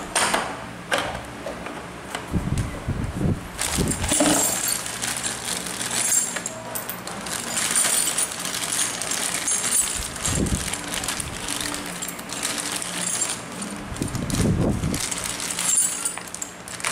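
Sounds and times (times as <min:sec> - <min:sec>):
plastic bag crinkling: 0:03.6 - 0:06.5, 0:07.1 - 0:16.9
metal bolts clinking on tile: 0:04.0 - 0:10.0, 0:15.5 - 0:16.9.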